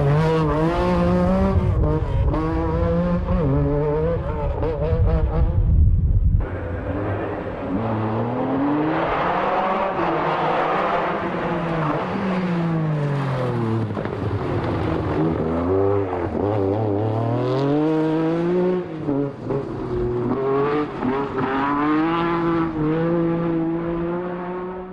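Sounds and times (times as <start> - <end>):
rally car engine revving: 0.0 - 24.9.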